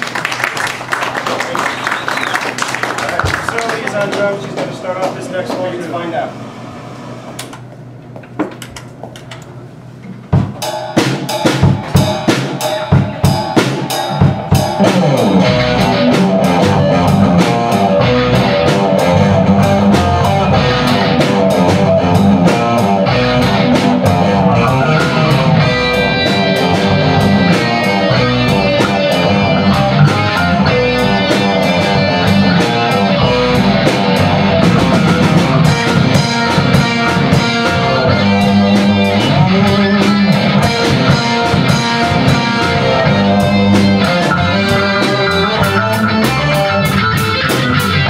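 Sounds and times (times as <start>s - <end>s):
bass guitar: 10.2s - 48.0s
drum kit hits: 10.3s - 48.0s
electric guitars: 11.5s - 48.0s.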